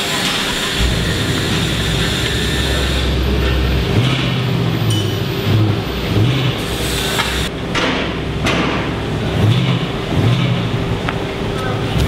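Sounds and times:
throaty car exhaust rumble: 0:00.0 - 0:12.0.

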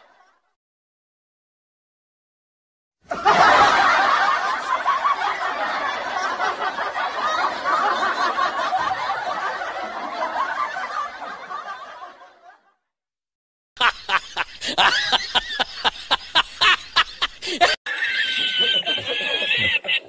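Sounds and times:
people laughing: 0:03.1 - 0:12.8, 0:13.8 - 0:20.0.

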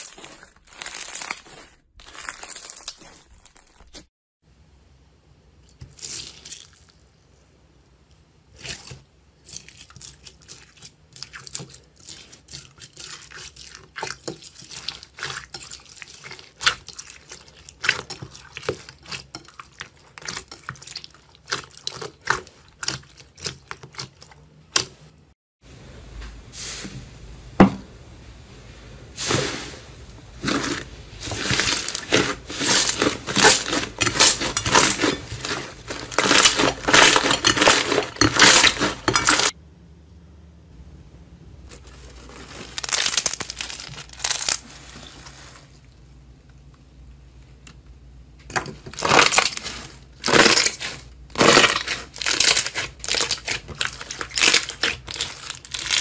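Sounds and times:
slime squelching and popping: 0:48.9 - 0:56.0
slime clicking and crackling: 0:49.0 - 0:56.0.

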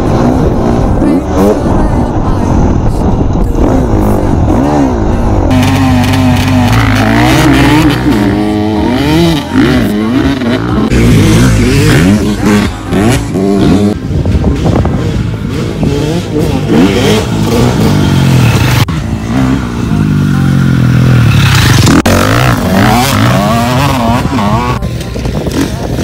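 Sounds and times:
motocross bike engines revving: 0:00.0 - 0:26.0.

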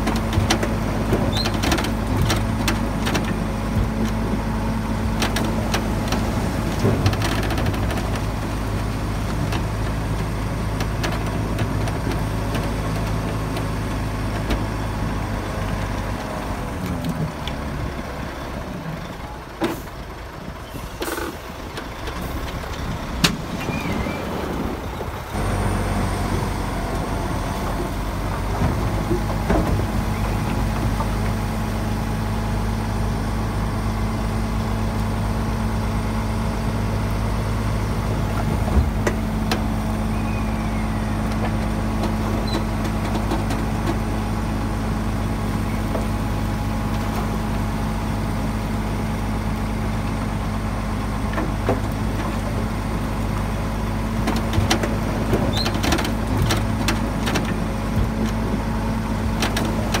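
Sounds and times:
heavy diesel engine running: 0:00.0 - 1:00.0
sharp clicks and knocks: 0:54.2 - 0:58.6, 0:59.2 - 1:00.0.

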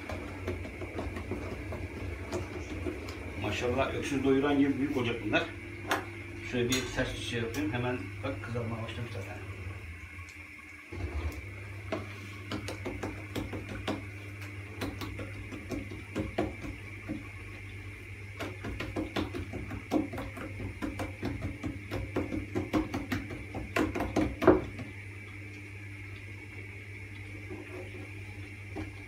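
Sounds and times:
steady low hum: 0:00.0 - 0:29.0
hands slapping dough on board: 0:12.4 - 0:17.3, 0:18.4 - 0:24.9.

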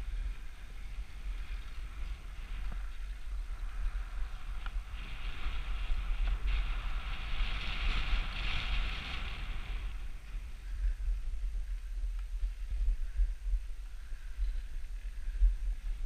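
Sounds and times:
wind buffeting microphone: 0:00.0 - 0:16.0
skis hissing through snow: 0:00.4 - 0:10.5.

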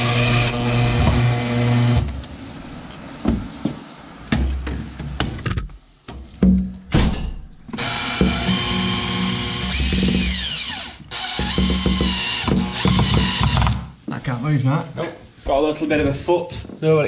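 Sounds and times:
cordless drill driving screws: 0:07.8 - 0:13.8.

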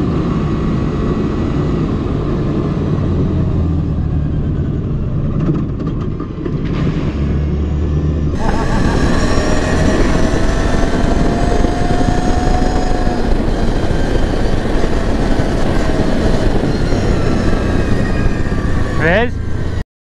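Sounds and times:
loud rushing noise: 0:06.7 - 0:19.8
atv engine running: 0:08.4 - 0:19.8.

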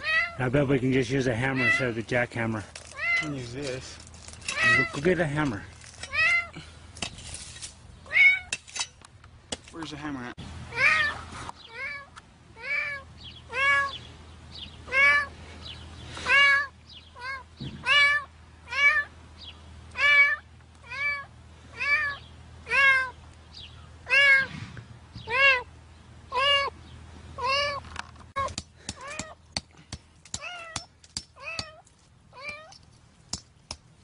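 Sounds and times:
cat meowing: 0:00.0 - 0:00.4, 0:01.6 - 0:02.0, 0:02.9 - 0:03.4, 0:04.5 - 0:05.0, 0:08.1 - 0:08.5, 0:10.7 - 0:14.0, 0:14.9 - 0:15.3, 0:16.2 - 0:19.1, 0:20.0 - 0:23.2, 0:24.0 - 0:24.5, 0:25.3 - 0:25.7, 0:26.3 - 0:26.7, 0:27.4 - 0:27.8, 0:32.4 - 0:32.8.

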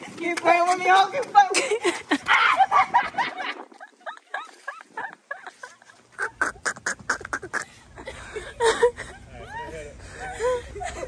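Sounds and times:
woman squealing laughter: 0:02.1 - 0:06.7, 0:07.4 - 0:11.0.

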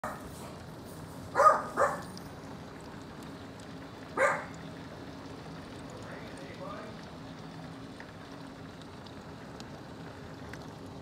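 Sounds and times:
dog barking: 0:01.4 - 0:02.1, 0:04.2 - 0:04.5.

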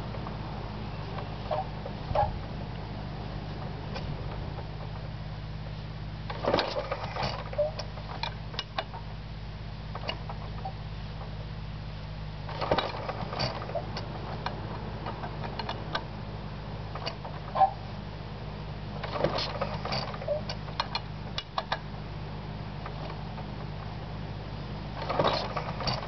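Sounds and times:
steady low hum: 0:00.0 - 0:26.0
engine clicking and clattering: 0:06.3 - 0:09.0, 0:12.5 - 0:16.1, 0:19.0 - 0:21.9, 0:25.0 - 0:26.0.

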